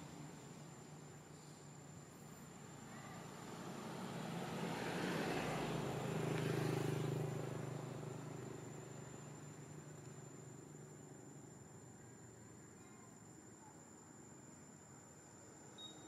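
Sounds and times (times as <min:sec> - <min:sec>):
motor vehicle passing by: 0:03.2 - 0:09.9.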